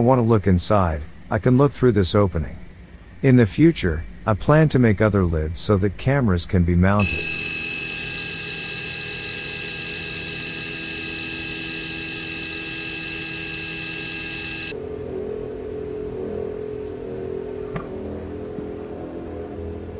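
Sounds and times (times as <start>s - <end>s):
lower machine hum: 7.0s - 19.9s
machine hum with high whine: 7.0s - 19.9s.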